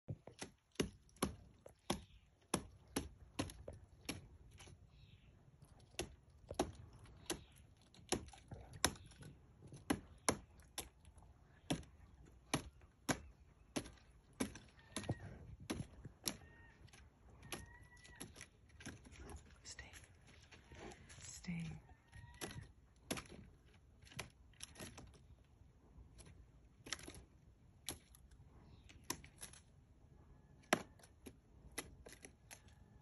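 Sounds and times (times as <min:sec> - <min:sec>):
woodpecker chopping into wood: 0:00.2 - 0:04.8, 0:05.8 - 0:11.0, 0:11.6 - 0:16.6.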